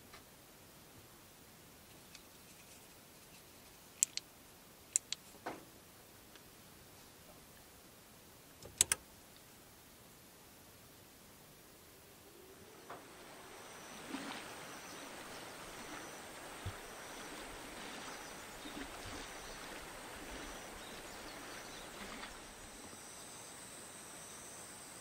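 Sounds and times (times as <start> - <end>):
insects chirping: 11.7 - 25.0
river flowing over gravel: 12.6 - 23.7.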